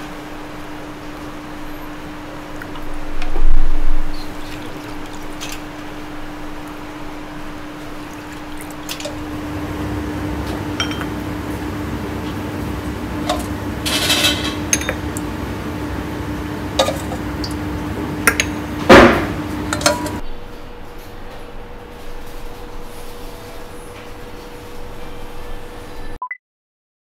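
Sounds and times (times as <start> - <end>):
steady hum: 0.0 - 20.8
metal ladle clinking: 10.8 - 11.2, 13.2 - 15.2, 16.8 - 17.6, 18.2 - 20.2
loud knock: 18.9 - 19.4.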